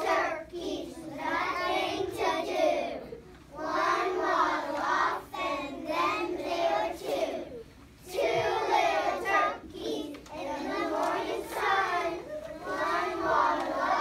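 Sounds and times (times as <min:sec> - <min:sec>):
children singing in unison: 0:00.0 - 0:14.0.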